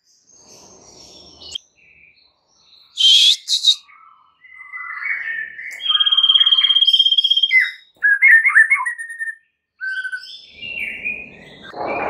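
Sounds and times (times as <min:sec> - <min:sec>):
bird singing whistled phrases: 0:03.0 - 0:11.8.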